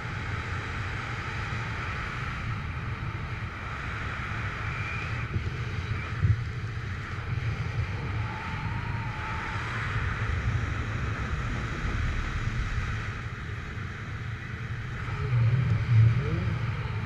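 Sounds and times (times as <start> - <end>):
wind rushing on microphone: 0.0 - 17.0
low buffeting rumble: 5.2 - 17.0.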